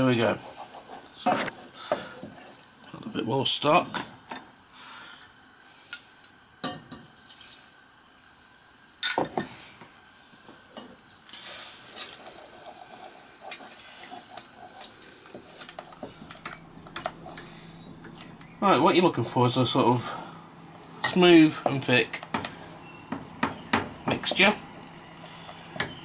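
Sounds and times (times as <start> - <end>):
spoon knocking against pan: 23.1 - 24.0.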